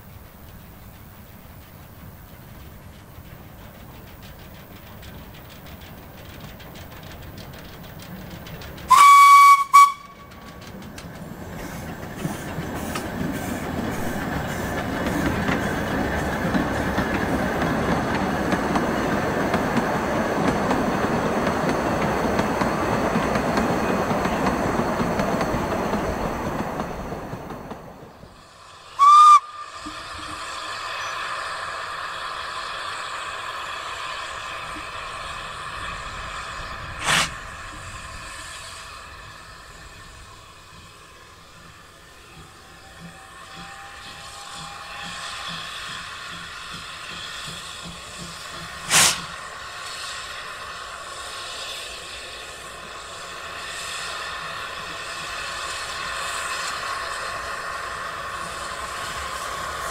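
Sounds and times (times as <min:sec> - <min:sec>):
train wheels rumbling on rails: 0:00.0 - 0:59.9
steam locomotive whistle: 0:08.9 - 0:10.4, 0:28.8 - 0:31.6, 0:42.4 - 0:47.2, 0:48.9 - 0:50.8.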